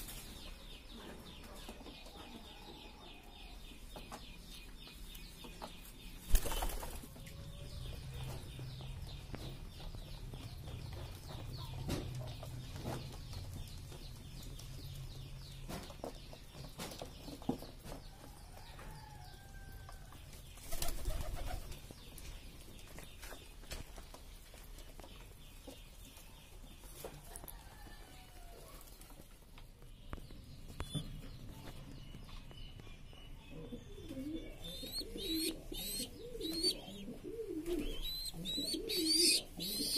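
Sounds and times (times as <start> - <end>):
pigeon wings flapping: 6.3 - 7.0.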